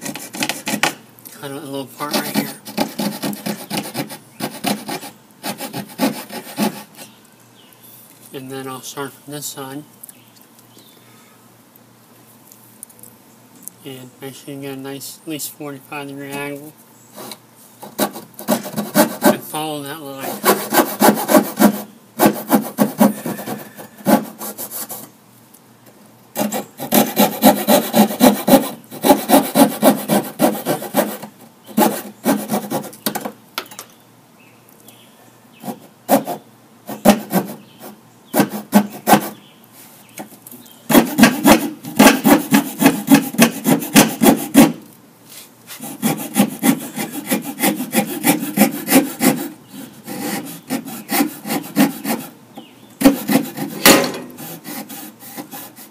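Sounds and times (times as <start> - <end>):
coping saw cutting wood: 2.0 - 7.0, 17.2 - 25.1, 26.4 - 33.0, 40.9 - 44.8, 45.7 - 52.3, 53.0 - 55.9.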